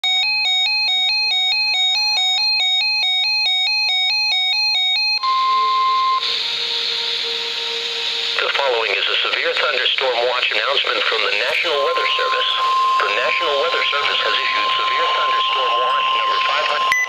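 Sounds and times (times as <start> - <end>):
steady high alarm tone: 0.0 - 17.0
electronic two-pitch beeping: 5.2 - 17.0
radio hiss: 6.2 - 16.9.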